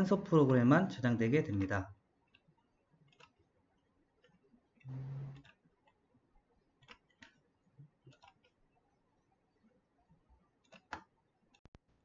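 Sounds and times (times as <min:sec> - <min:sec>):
brief low buzz: 0:04.9 - 0:05.4.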